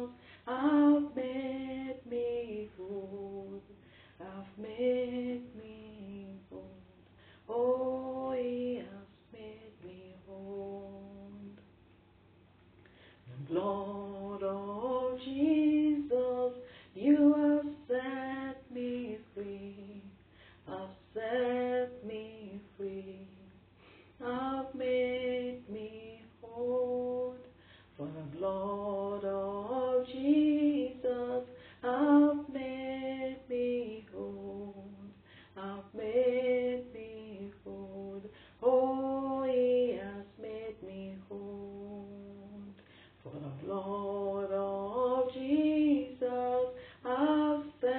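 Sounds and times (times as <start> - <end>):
woman singing unaccompanied: 0.0 - 11.7, 13.2 - 47.9
short breaths: 12.8 - 13.5, 20.2 - 20.7, 23.7 - 24.2, 27.5 - 28.0, 35.2 - 35.6, 42.8 - 43.2.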